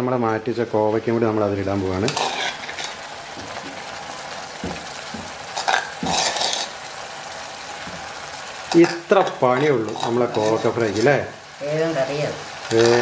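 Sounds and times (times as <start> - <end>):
vegetables sizzling in a pan: 0.0 - 13.0
steel spoon scraping pan: 2.1 - 3.0, 5.5 - 6.8, 8.7 - 11.1.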